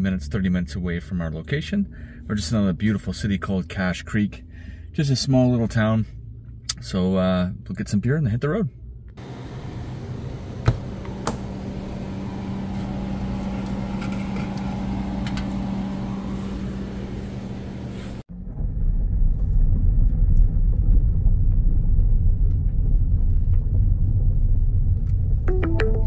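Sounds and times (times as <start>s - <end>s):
steady low hum: 0.0s - 26.0s
car driving rumble: 9.2s - 25.5s.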